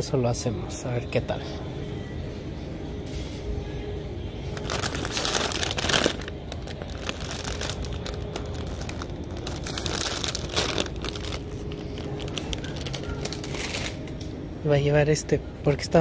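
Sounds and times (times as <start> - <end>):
low background hum: 0.0 - 16.0
plastic bags crinkling: 4.5 - 14.1.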